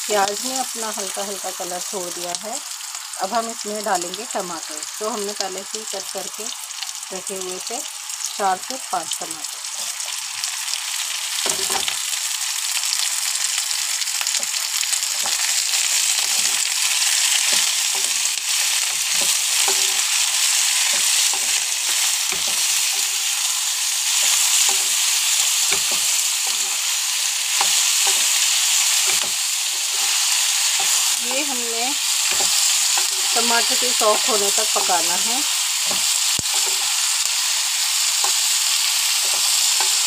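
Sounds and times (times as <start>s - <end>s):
vegetables sizzling in hot oil: 0.0s - 40.0s.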